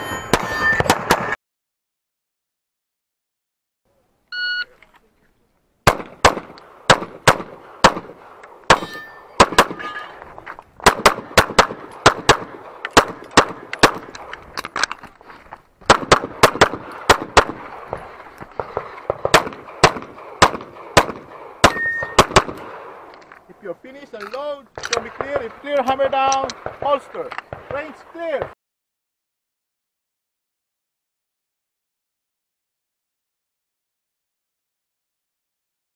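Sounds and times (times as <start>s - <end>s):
metallic ring of steel targets: 0.0s - 1.0s, 8.7s - 10.1s, 21.7s - 22.2s
rapid pistol shots: 5.8s - 9.8s, 10.8s - 14.4s, 15.9s - 23.1s, 24.8s - 28.5s.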